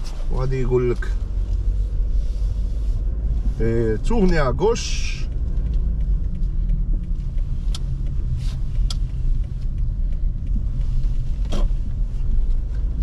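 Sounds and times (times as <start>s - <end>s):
car engine and tyres rumbling: 0.0s - 13.0s
faint light clicks: 3.4s - 13.0s.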